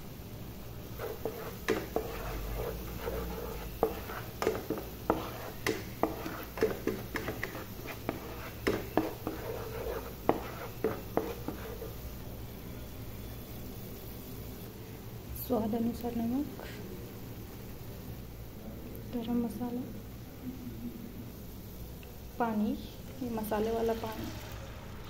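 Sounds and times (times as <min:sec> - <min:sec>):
spatula scraping frying pan: 0:00.9 - 0:12.0.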